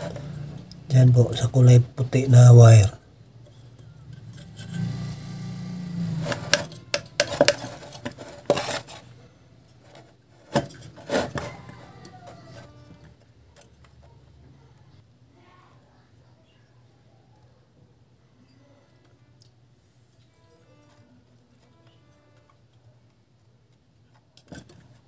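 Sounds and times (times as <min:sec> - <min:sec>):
wires scraping on metal chassis: 0:03.5 - 0:09.2, 0:09.9 - 0:13.1.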